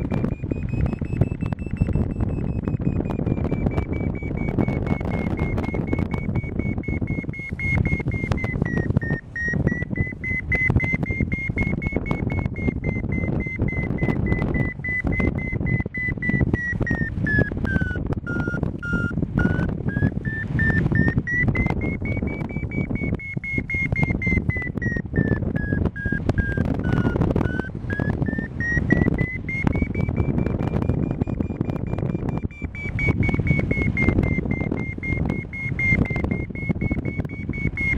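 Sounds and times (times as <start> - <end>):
gusty wind on microphone: 0.0 - 37.9
variometer climb tone: 0.0 - 37.9.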